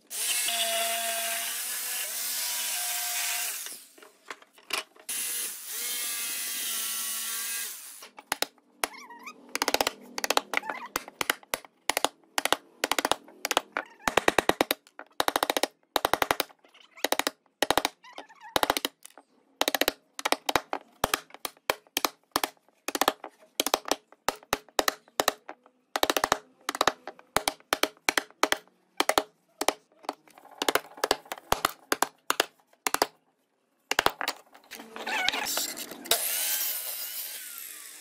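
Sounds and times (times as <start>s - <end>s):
mallet hammering a chisel into wood: 9.5s - 18.0s, 19.6s - 29.8s, 30.6s - 33.1s.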